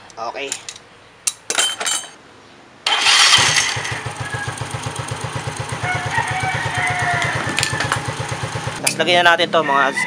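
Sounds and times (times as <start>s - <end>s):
scooter engine starting and idling: 2.9s - 8.9s.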